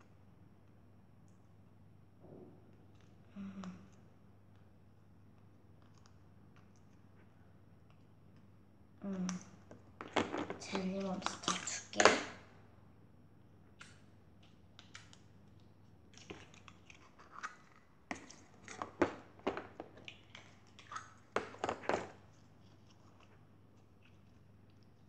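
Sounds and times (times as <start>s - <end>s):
slime squishing and crackling: 13.8s - 25.0s.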